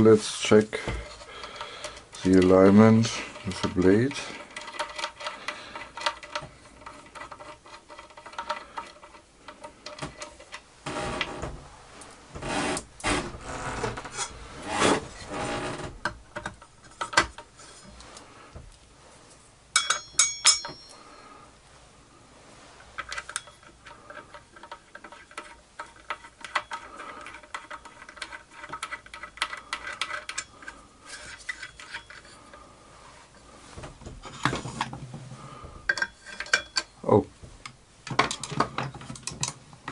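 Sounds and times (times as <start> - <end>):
plywood scraping against metal: 0.0 - 18.6, 22.6 - 39.9
metallic clinks with ringing: 19.8 - 21.3.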